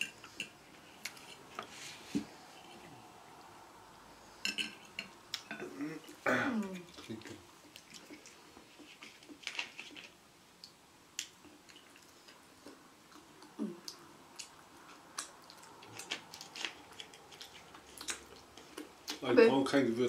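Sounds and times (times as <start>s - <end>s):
wet chewing: 6.8s - 19.2s.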